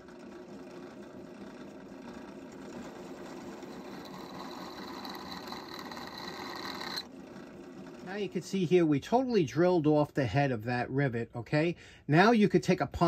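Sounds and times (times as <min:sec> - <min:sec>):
drill press whirring: 0:00.0 - 0:09.0
high-pitched drill whine: 0:03.6 - 0:07.1.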